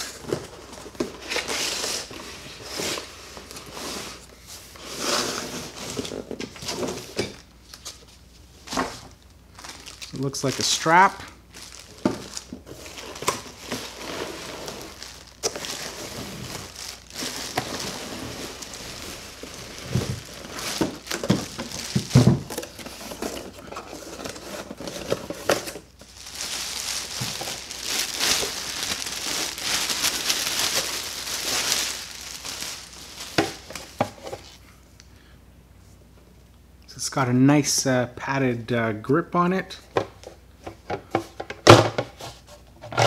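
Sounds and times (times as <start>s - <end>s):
plastic packaging crinkling: 5.7s - 34.6s.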